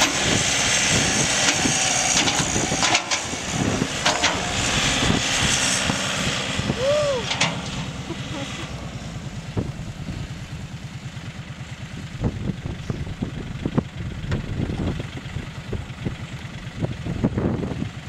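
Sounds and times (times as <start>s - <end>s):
tractor diesel engine idling: 0.0s - 18.0s
clanks and knocks: 1.4s - 3.3s, 4.0s - 4.4s, 7.3s - 7.8s.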